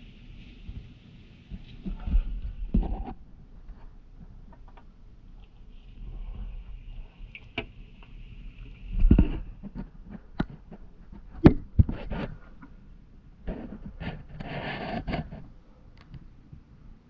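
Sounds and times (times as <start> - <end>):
rustling scrape: 0.0 - 4.0, 8.7 - 12.8, 13.4 - 15.5.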